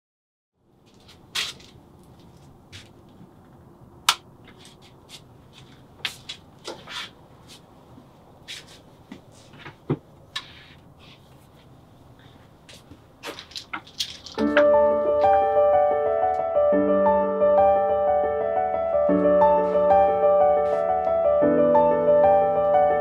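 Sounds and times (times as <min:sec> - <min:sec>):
kitchen items clinking and knocking: 0:13.3 - 0:14.5.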